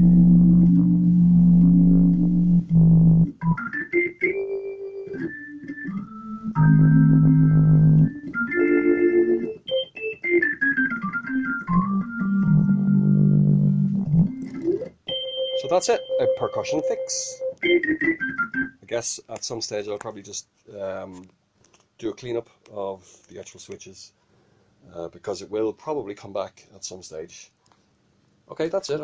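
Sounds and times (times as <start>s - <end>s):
organ chords and quick phrases: 0.0s - 18.9s.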